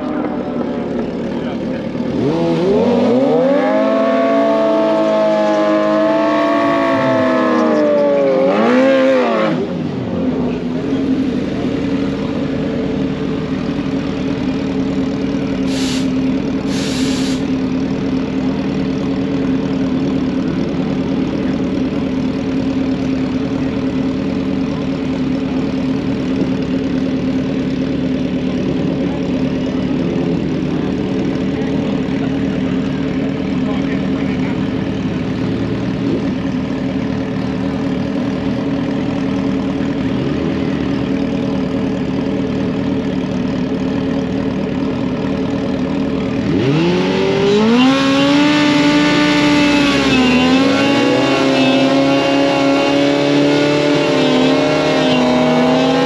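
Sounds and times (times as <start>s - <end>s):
motorcycle engines idling: 0.0s - 8.4s, 9.4s - 55.8s
motorcycle engine revving: 0.0s - 56.0s
short hisses: 15.7s - 17.4s.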